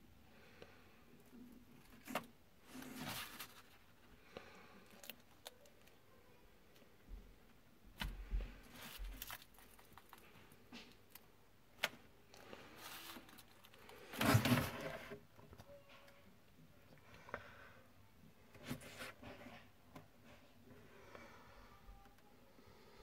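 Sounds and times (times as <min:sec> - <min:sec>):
faint rustling: 0:01.7 - 0:06.0.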